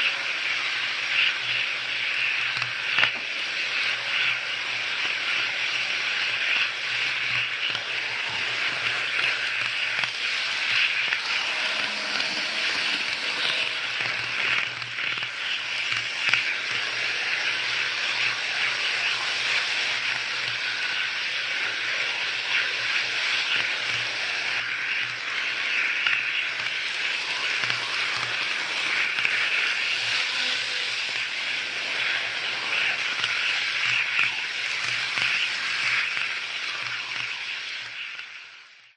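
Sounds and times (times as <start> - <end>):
model train rattling whir: 0.0 - 38.9
low hum: 11.1 - 14.7.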